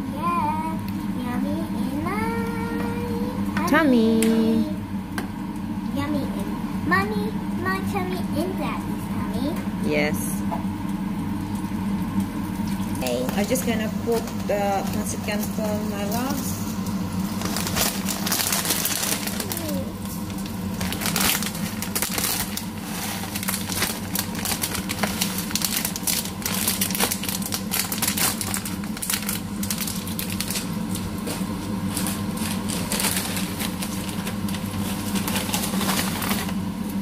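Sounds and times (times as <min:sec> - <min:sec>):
meat and vegetables sizzling: 0:01.5 - 0:36.8
dry noodles crunching: 0:17.3 - 0:36.6
plastic bag crinkling: 0:17.3 - 0:36.6.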